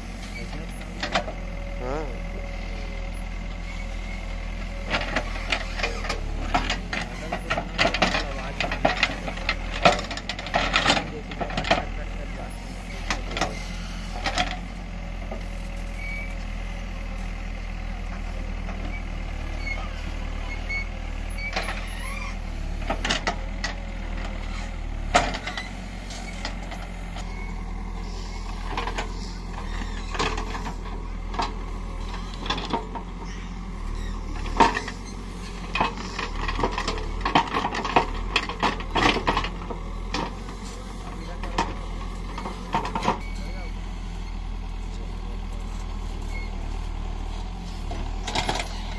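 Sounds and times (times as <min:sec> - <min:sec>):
diesel engine running under load: 0:00.0 - 0:48.9
backhoe bucket knocking and clanking: 0:00.4 - 0:01.5, 0:04.8 - 0:12.1, 0:28.5 - 0:33.2, 0:34.2 - 0:40.6, 0:41.4 - 0:43.6.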